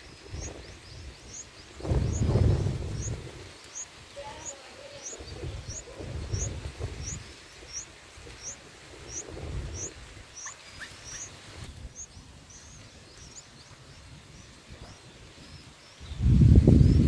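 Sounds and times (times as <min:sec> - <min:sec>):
bird chirping: 0:00.0 - 0:17.0
low rumbling noise: 0:00.2 - 0:10.4.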